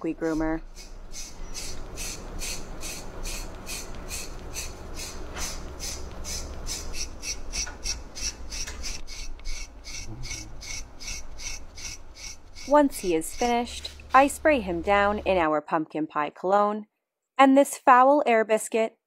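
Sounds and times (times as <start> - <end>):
blade scraping dog's coat: 8.6 - 14.3.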